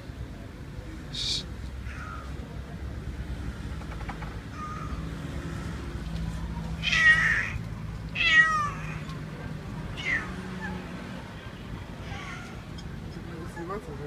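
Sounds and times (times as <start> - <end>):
cat meowing: 1.8 - 2.4, 4.5 - 5.1, 6.8 - 7.6, 8.2 - 9.2, 9.9 - 10.9, 12.0 - 12.8.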